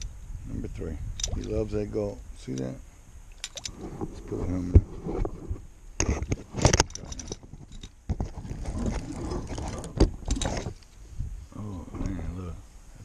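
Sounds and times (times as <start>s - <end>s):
rustling: 3.4s - 13.0s.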